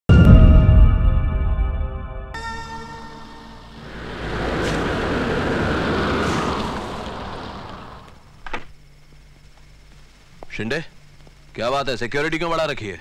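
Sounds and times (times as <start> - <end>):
car driving past on wet road: 3.0 - 8.5.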